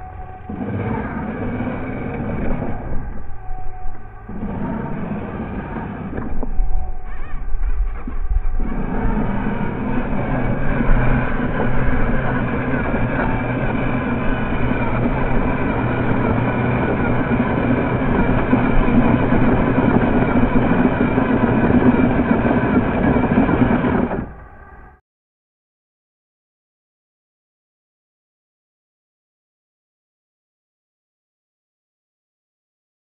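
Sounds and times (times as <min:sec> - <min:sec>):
vehicle motor running: 0:00.0 - 0:25.0.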